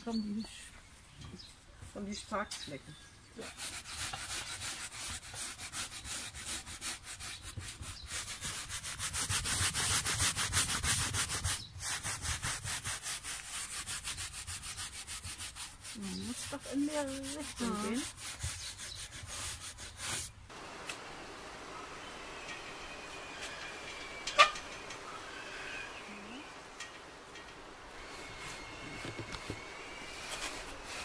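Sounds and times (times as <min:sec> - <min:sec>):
brushes scrubbing woven fabric: 0:03.4 - 0:20.4, 0:28.0 - 0:31.0.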